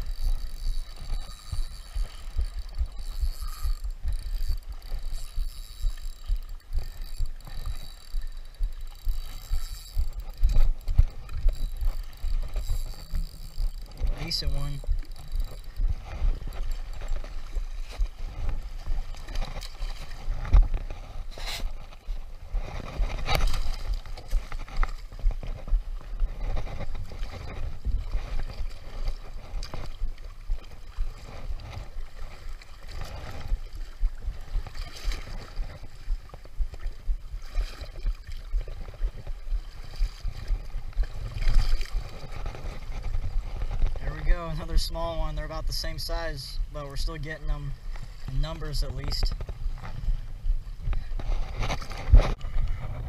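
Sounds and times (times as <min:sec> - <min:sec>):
seawater washing against rocks: 0:00.0 - 0:50.0
wind rumbling on microphone: 0:00.0 - 0:53.0
fish thrashing in water: 0:22.8 - 0:44.0.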